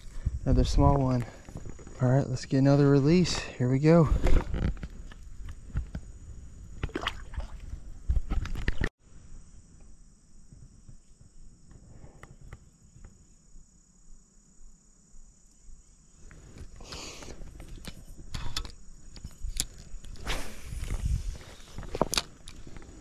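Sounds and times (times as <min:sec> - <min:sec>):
insects droning: 0:00.0 - 0:23.0
handling rustles and clicks: 0:16.5 - 0:23.0.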